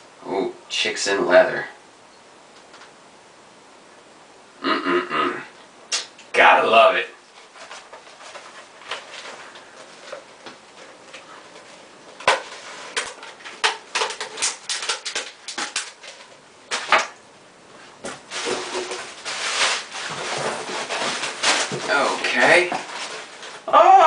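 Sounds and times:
packaging crinkling: 7.3s - 17.2s, 18.0s - 23.7s.

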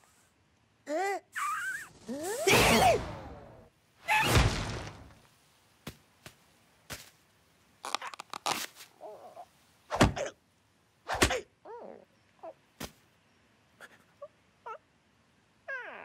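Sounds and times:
cartoon squeaky cries: 0.9s - 3.1s
cartoon crash: 1.4s - 5.2s
heavy thuds: 4.2s - 5.2s.

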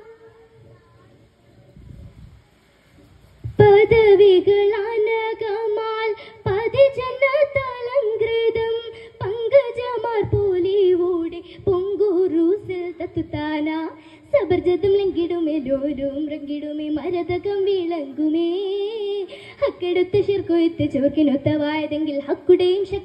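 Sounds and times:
girl singing unaccompanied: 0.0s - 1.4s, 3.4s - 23.0s.

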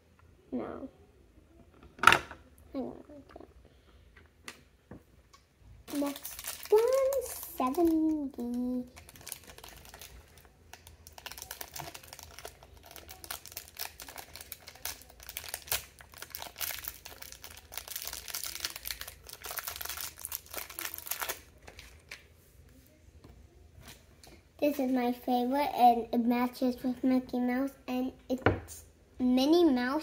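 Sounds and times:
wrapper crinkling and tearing: 5.9s - 22.2s.

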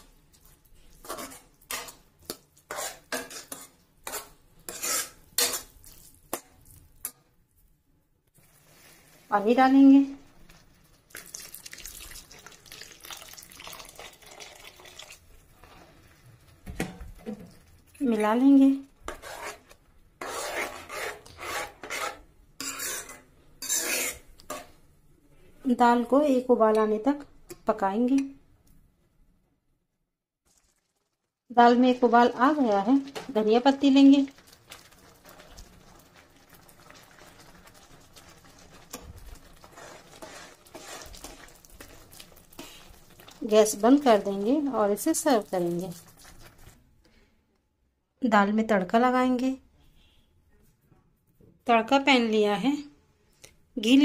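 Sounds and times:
spoon scraping in pan: 0.0s - 7.2s, 18.2s - 24.8s, 37.2s - 46.8s
water pouring into pan: 11.0s - 15.9s, 30.5s - 31.4s, 32.4s - 46.8s.

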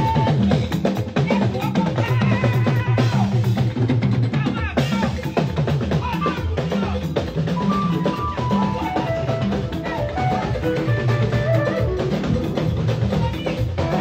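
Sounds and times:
drum kit played energetically: 0.0s - 14.0s
live church band music: 4.8s - 14.0s.

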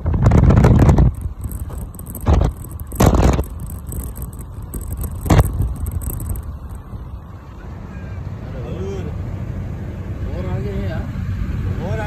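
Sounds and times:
car road and tyre noise: 0.0s - 12.0s.

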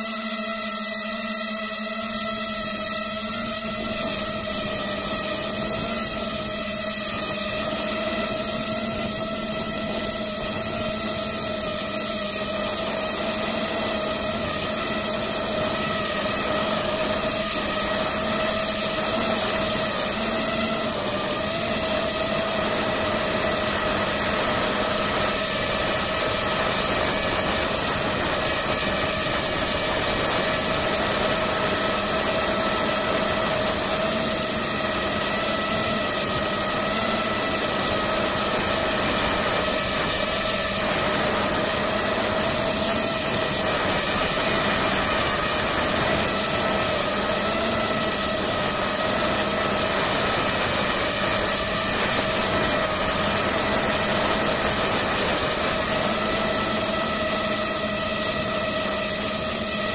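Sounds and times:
drone propellers whining: 0.0s - 59.9s.

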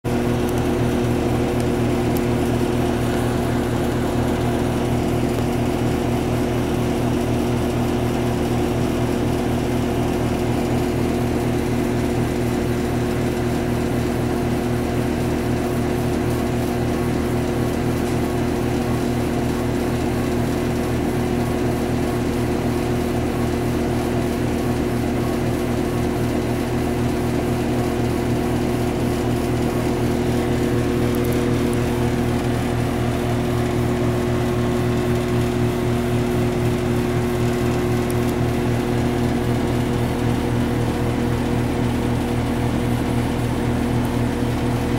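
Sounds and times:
laser cutter humming: 0.1s - 15.0s, 27.8s - 44.9s.

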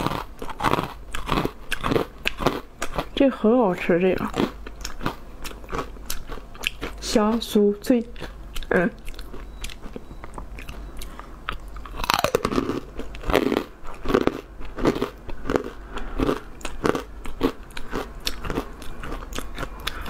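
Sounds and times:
crunching and chewing dried fruit: 0.0s - 20.0s.

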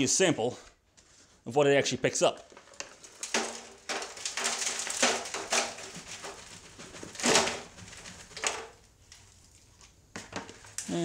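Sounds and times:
debris clattering: 2.5s - 9.4s
metal debris rattling into pan: 2.6s - 8.8s.

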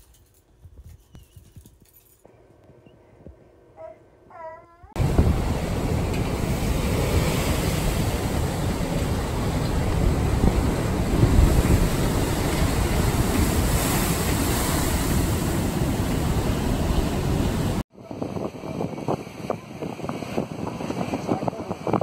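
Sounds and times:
storm waves crashing against a seawall: 5.0s - 17.8s
gusty wind noise: 5.0s - 22.0s
wind buffeting the microphone: 5.0s - 22.0s.

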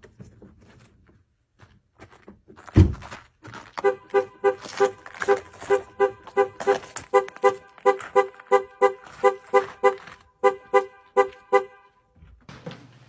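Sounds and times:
car alarm horn honking: 3.8s - 12.2s.

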